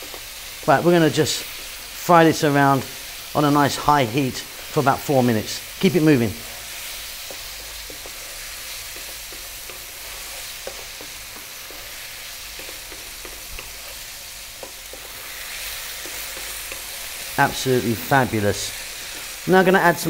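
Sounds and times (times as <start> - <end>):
meat sizzling in a pan: 0.0 - 20.0
wooden spatula scraping and tapping: 1.4 - 1.8, 6.6 - 17.6, 18.7 - 19.4.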